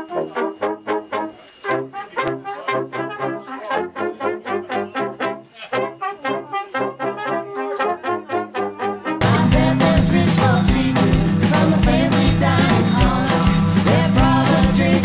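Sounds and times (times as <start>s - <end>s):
brass band playing: 0.0s - 15.0s
louder dense music: 9.2s - 15.0s.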